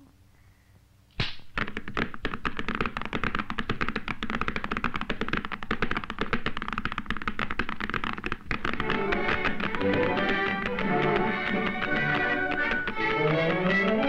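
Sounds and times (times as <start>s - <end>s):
cartoon horse hooves clattering: 1.5s - 14.0s.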